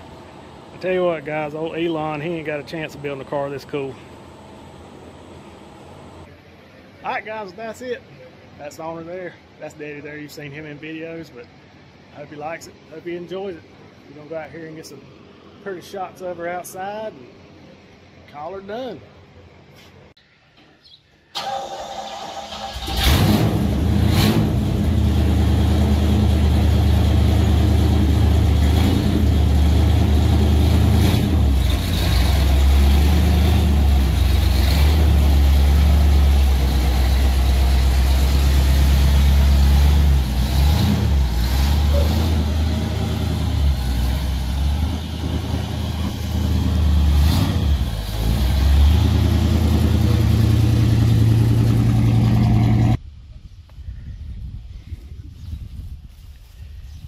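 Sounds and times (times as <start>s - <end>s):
car engine running: 23.7s - 53.0s.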